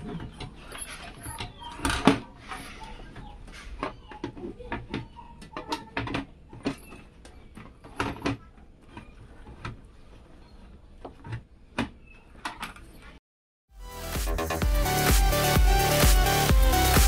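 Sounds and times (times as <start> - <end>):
metal and plastic clicks and scraping: 0.0 - 13.2.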